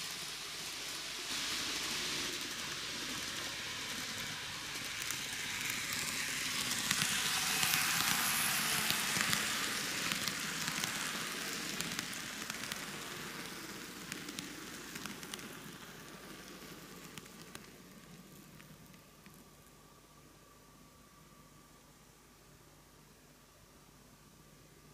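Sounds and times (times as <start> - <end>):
model train wheels rumbling: 0.0 - 19.7.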